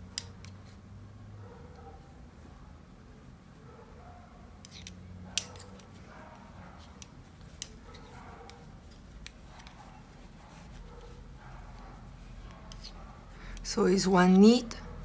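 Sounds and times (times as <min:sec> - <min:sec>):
knitting needles clicking: 0:00.0 - 0:00.8, 0:04.6 - 0:06.0, 0:06.8 - 0:10.0, 0:12.3 - 0:14.9.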